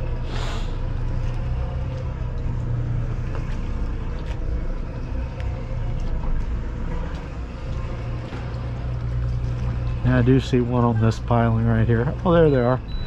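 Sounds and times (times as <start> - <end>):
electric trolling motor humming: 0.0 - 13.0
brief hiss: 0.3 - 0.8.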